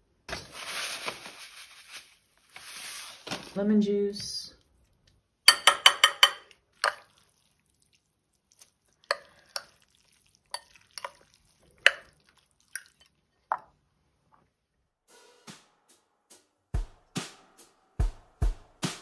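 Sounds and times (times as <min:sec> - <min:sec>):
utensil tapping against bowl: 0:05.5 - 0:07.0
fork clinking and scraping bowl: 0:05.5 - 0:07.2, 0:09.1 - 0:13.1.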